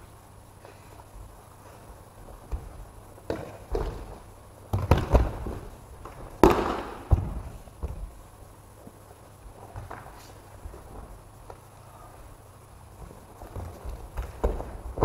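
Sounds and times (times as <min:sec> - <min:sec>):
bodies thudding on mats: 0:02.2 - 0:08.2, 0:13.0 - 0:15.0.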